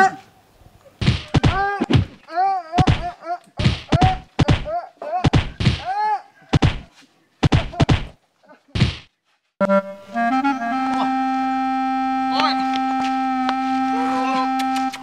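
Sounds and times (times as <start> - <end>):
punch and kick thuds: 1.0 - 2.2, 2.8 - 5.9, 6.5 - 8.2, 8.8 - 9.1.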